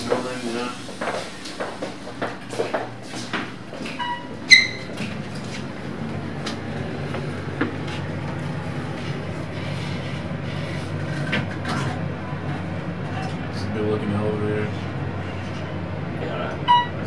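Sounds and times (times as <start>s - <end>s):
elevator car rumbling: 0.0s - 17.0s
electronic elevator ding: 4.0s - 4.8s, 16.7s - 17.0s.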